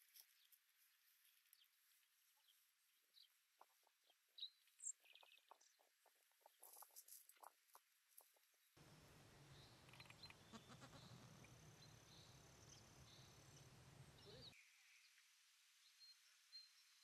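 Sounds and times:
faint high chirps: 8.8s - 15.2s.

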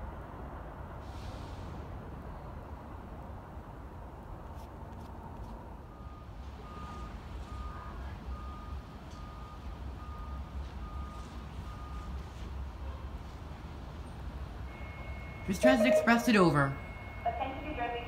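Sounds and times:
repeating electronic beep: 14.8s - 17.2s.

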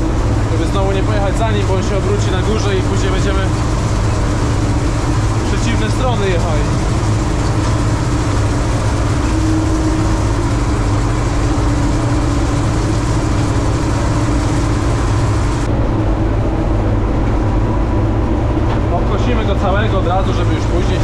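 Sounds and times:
combine harvester droning: 0.0s - 21.0s.

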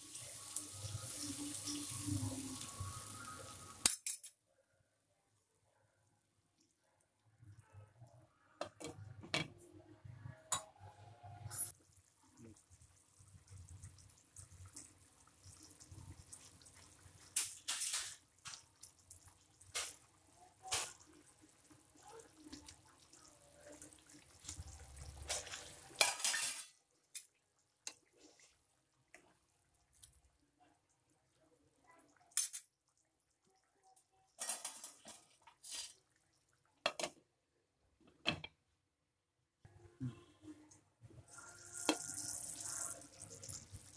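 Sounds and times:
gravy simmering in a pan: 0.0s - 3.9s, 10.0s - 36.9s, 41.2s - 43.9s.

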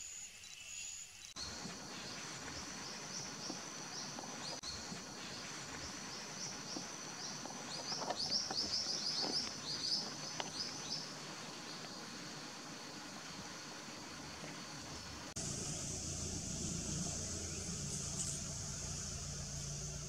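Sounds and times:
small bird chirping: 16.8s - 20.0s.

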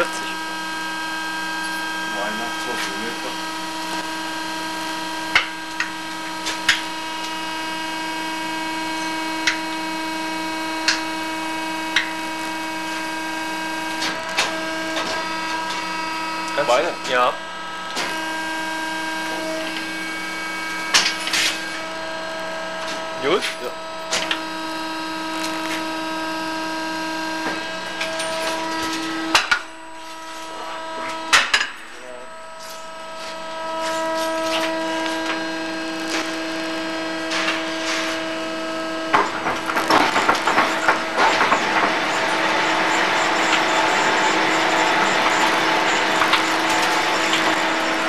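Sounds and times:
lathe machine hum: 0.0s - 48.0s.

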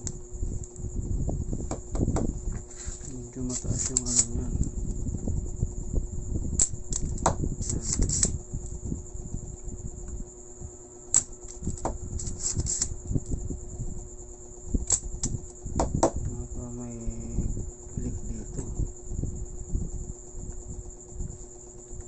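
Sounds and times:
steady high-pitched whine: 0.0s - 22.0s
desoldering pump clicking: 2.6s - 5.0s, 6.6s - 8.8s, 11.1s - 12.9s, 14.8s - 15.6s.

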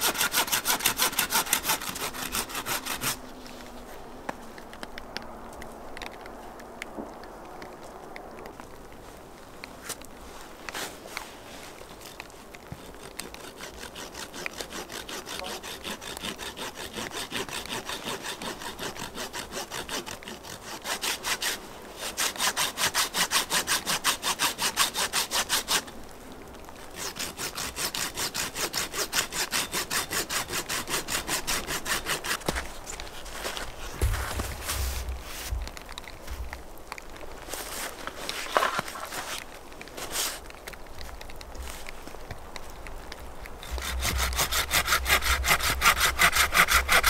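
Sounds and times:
hand saw cutting wood: 0.0s - 3.3s, 12.0s - 25.9s, 26.9s - 35.5s, 43.6s - 47.0s.

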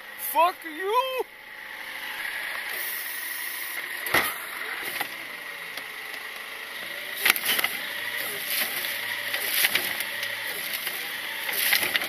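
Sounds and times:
garbage truck hydraulic noise: 1.8s - 12.0s
trash cart knocks and clatter: 4.1s - 4.4s, 7.2s - 12.0s.

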